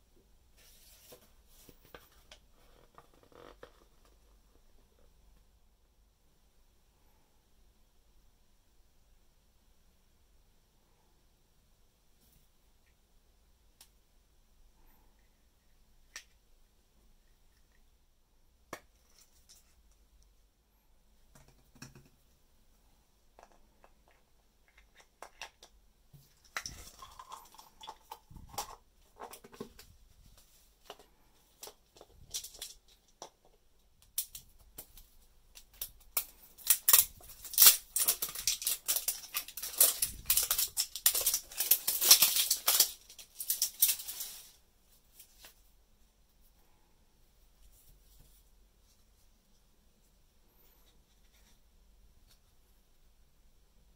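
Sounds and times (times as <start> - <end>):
plastic wrapping crackling: 34.1 - 44.6.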